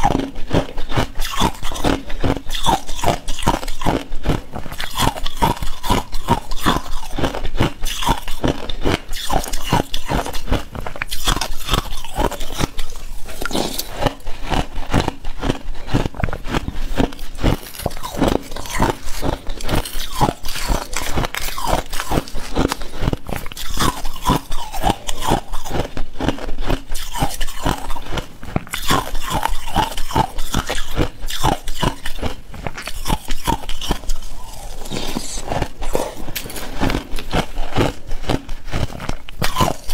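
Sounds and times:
shaved ice crunching while chewed: 0:00.0 - 0:39.9.

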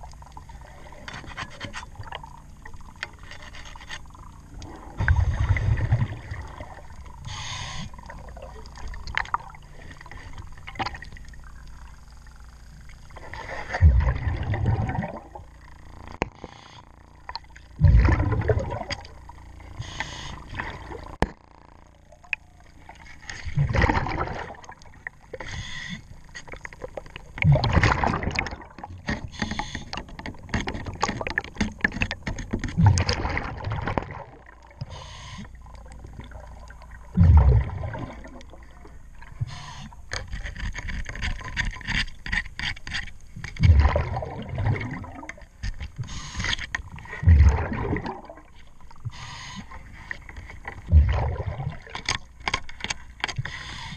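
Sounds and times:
diver's breath bubbling: 0:04.3 - 0:10.5, 0:13.2 - 0:21.8, 0:23.4 - 0:26.1, 0:27.3 - 0:30.1, 0:32.7 - 0:40.0, 0:43.6 - 0:50.0, 0:50.8 - 0:52.0.

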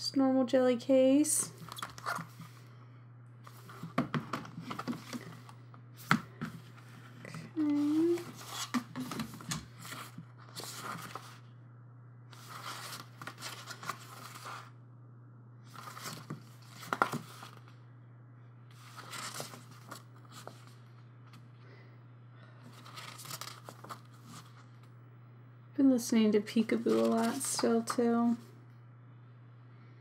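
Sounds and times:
steady low hum: 0:00.0 - 0:30.0
paper rustling and page turns: 0:01.6 - 0:02.6, 0:03.4 - 0:11.5, 0:12.3 - 0:14.7, 0:15.6 - 0:17.8, 0:18.7 - 0:21.4, 0:22.7 - 0:24.8, 0:26.6 - 0:28.4.

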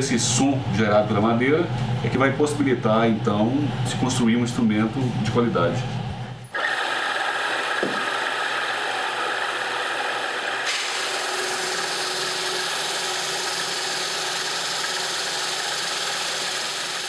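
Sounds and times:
motor hum: 0:06.3 - 0:17.0
drum sander grinding hiss: 0:06.5 - 0:17.0.

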